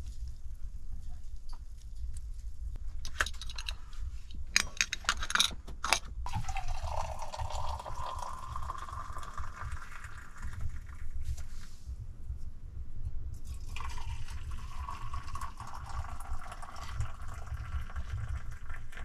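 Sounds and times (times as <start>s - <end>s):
tea pouring into steel mug: 6.3s - 11.1s, 13.4s - 19.0s.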